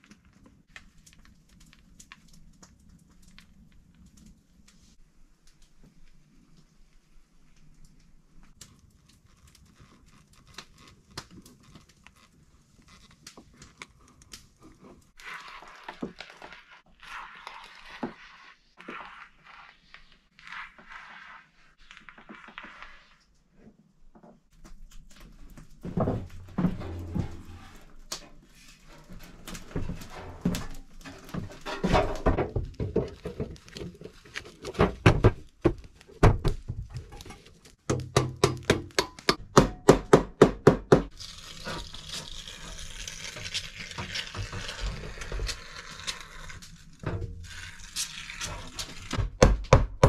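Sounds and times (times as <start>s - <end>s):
rustling: 24.6s - 37.8s
scattered knocks and handling: 24.6s - 41.0s
hammer striking nails: 37.9s - 41.1s.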